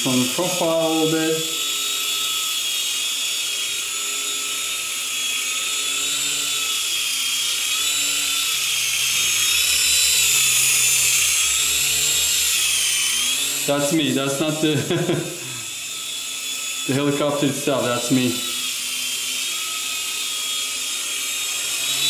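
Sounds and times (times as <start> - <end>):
helicopter rotors whirring: 0.0 - 22.0
small electric motors whining: 0.0 - 22.0.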